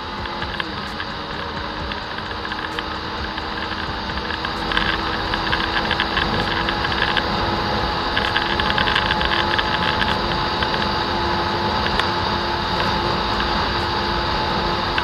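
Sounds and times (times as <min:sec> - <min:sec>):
motorcycle engine droning: 0:00.0 - 0:15.0
wind rushing over microphone: 0:00.0 - 0:15.0.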